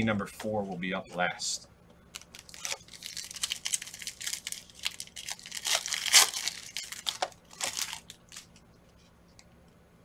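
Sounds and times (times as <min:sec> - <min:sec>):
foil wrapper crinkling: 0:02.1 - 0:08.6.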